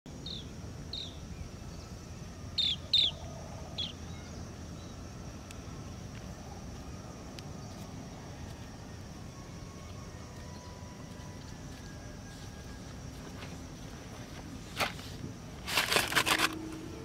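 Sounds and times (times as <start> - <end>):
high insect drone: 0.1 - 17.0
bird chirping: 0.2 - 5.0.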